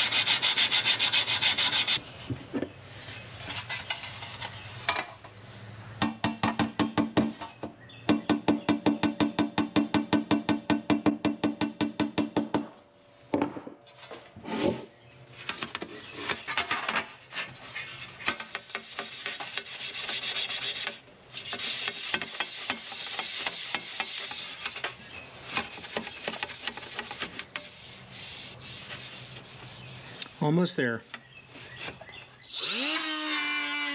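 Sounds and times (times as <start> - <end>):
rough rubbing by hand: 25.7 - 30.4.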